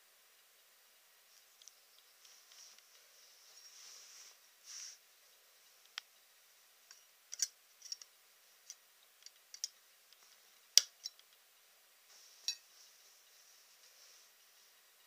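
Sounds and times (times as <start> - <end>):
knife tip clicking on metal pins: 7.3 - 8.1, 8.7 - 9.8.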